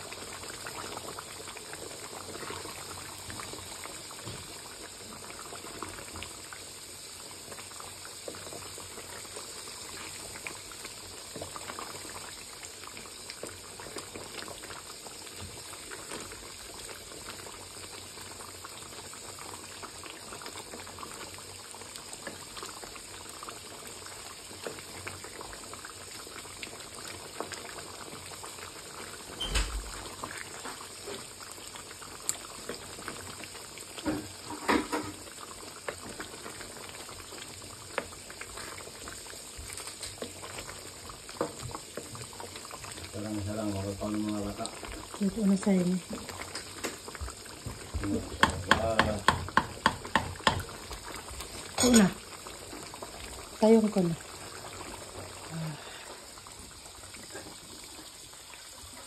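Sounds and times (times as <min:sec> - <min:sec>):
sauce bubbling and popping: 0:00.0 - 0:59.0
knock: 0:48.4 - 0:50.7.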